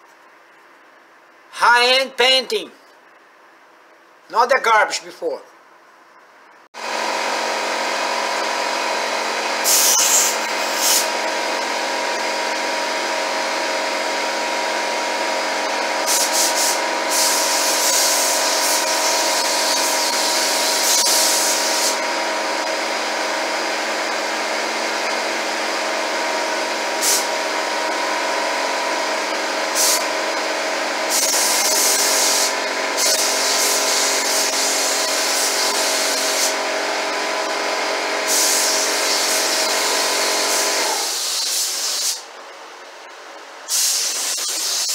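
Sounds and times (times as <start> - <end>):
steady machine drone: 6.8 - 44.9
paint spray gun hissing: 9.6 - 12.3, 15.7 - 22.2, 26.8 - 27.4, 29.6 - 30.2, 31.0 - 36.7, 38.2 - 42.3, 43.7 - 44.9.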